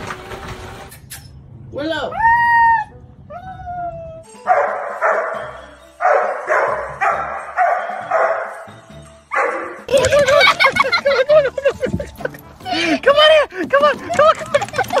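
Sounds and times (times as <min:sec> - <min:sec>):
dog barking: 0:04.5 - 0:05.4, 0:06.0 - 0:08.7, 0:09.3 - 0:09.8.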